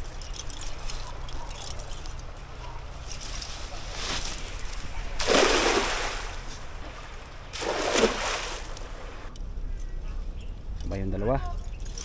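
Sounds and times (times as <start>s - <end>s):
water splashing: 4.8s - 9.3s.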